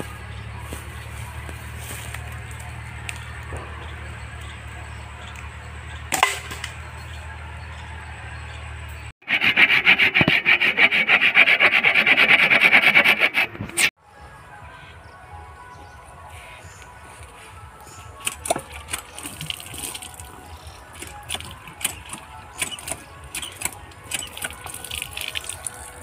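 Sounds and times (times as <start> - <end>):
hand saw cutting bamboo: 9.2 - 13.9, 21.0 - 25.6.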